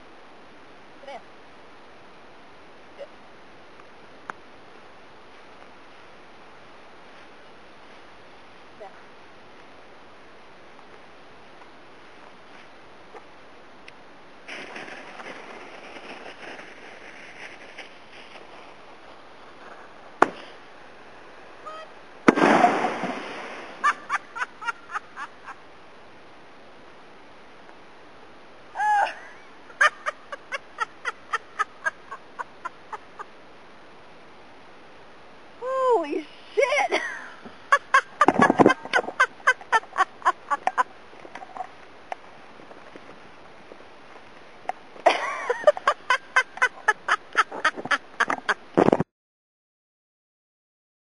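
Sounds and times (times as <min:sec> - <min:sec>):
low hiss: 0:00.0 - 0:49.0.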